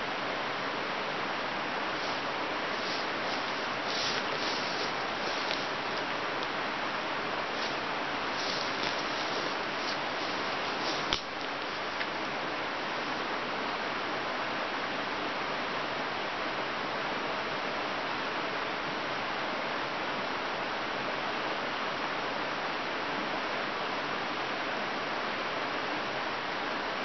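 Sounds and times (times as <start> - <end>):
river water rushing: 1.0 - 13.6.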